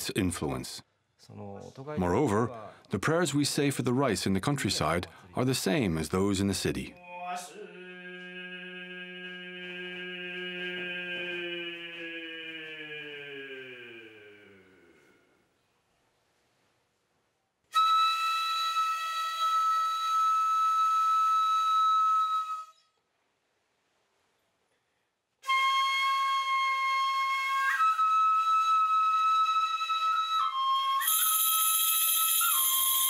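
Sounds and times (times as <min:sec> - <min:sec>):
flute playing high held notes: 0:17.8 - 0:22.8, 0:25.5 - 0:33.0
shaken bells jingling: 0:31.0 - 0:33.0.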